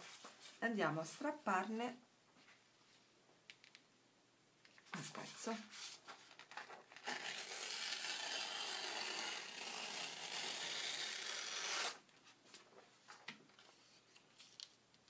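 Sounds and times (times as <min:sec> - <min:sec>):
paper tearing: 0:05.8 - 0:12.0.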